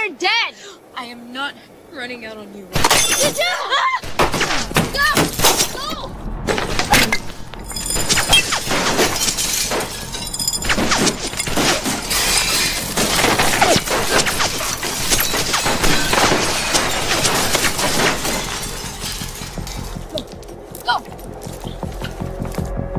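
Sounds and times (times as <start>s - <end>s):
glass shattering: 2.8s - 3.5s, 6.8s - 22.1s
glass shards scattering: 2.8s - 3.6s, 6.9s - 22.2s.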